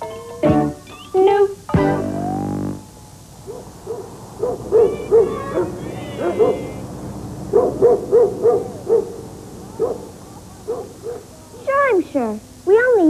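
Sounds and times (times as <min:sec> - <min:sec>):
wavering high tone: 0:00.0 - 0:03.1.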